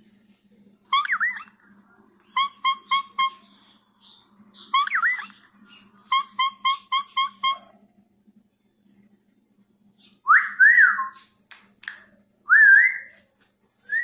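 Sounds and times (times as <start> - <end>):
whistled tune: 12.5 - 13.1.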